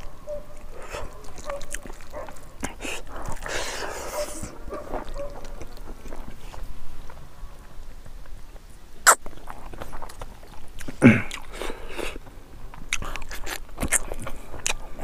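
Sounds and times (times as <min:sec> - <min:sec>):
wet mouth clicks from chewing: 0:00.6 - 0:03.6, 0:09.0 - 0:14.9
fingers squishing food: 0:00.6 - 0:06.2
loud mouth or throat noise: 0:09.0 - 0:10.1, 0:10.8 - 0:12.2.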